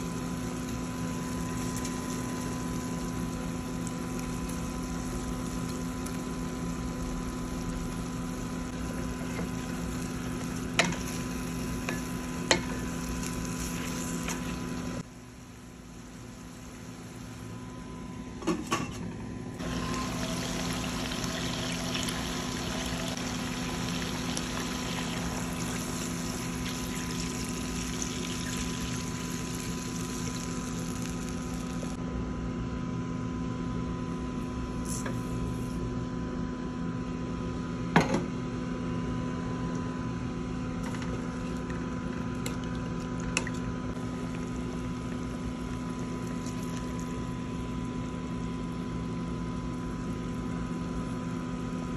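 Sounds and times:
liquid pouring: 44.2s - 47.3s.

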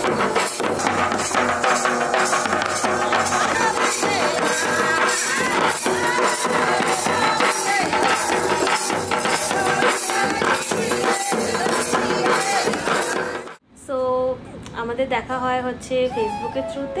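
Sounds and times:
barrel drums beaten with sticks: 0.0s - 13.6s.

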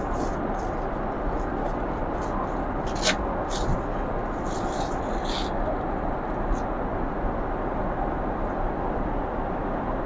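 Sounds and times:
jet cabin noise: 0.0s - 10.0s.

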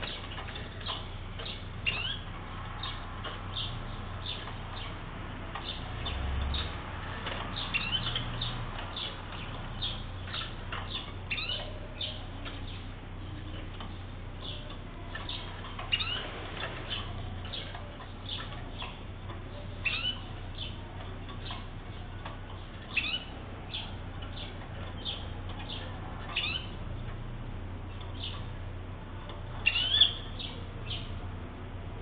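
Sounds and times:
canaries giving high call notes: 0.0s - 27.2s, 27.8s - 31.3s.

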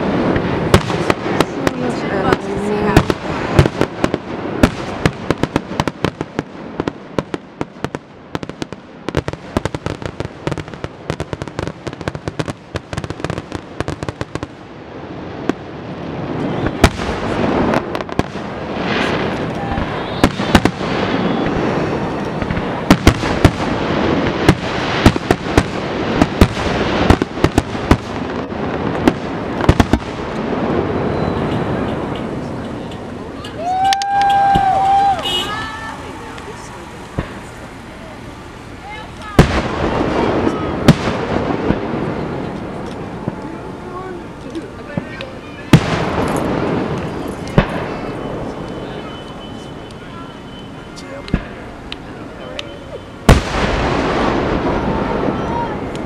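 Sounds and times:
fireworks aerial bursts rumbling: 0.0s - 56.0s
fireworks crackling pops: 0.0s - 56.0s
sharp fireworks bangs: 0.0s - 56.0s.

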